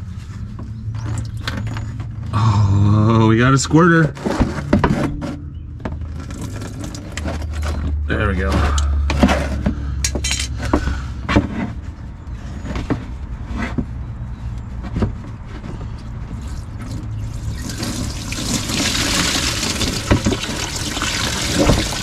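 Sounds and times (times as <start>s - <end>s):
coolant splashing into drain pan: 16.5s - 22.0s.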